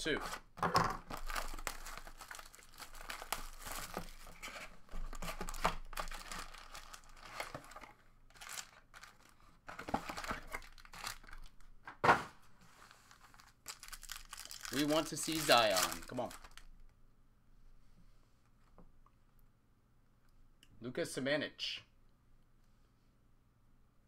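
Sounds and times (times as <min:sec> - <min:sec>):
foil packs crinkling and rustling: 0:00.0 - 0:11.7, 0:12.8 - 0:16.7.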